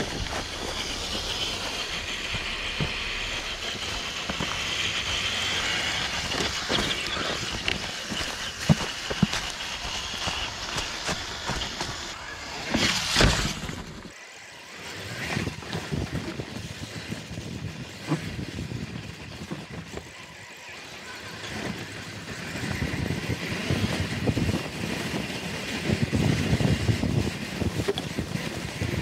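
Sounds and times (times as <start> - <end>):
tyres crunching over dry leaves: 0.0 - 14.1.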